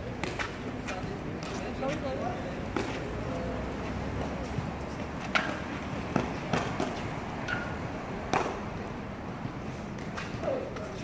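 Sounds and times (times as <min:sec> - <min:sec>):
rackets striking shuttlecock: 0:00.0 - 0:01.7, 0:02.7 - 0:03.0, 0:05.2 - 0:08.7.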